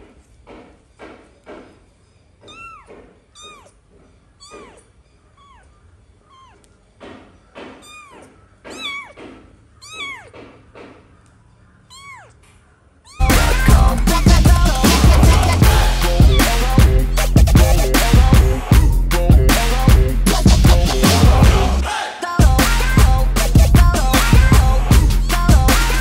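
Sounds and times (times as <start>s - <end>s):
kitten mewing: 2.4s - 3.8s, 4.4s - 5.7s, 6.3s - 6.7s, 7.6s - 10.5s, 11.8s - 14.7s, 15.4s - 18.2s, 24.2s - 26.0s
loud music: 13.2s - 26.0s.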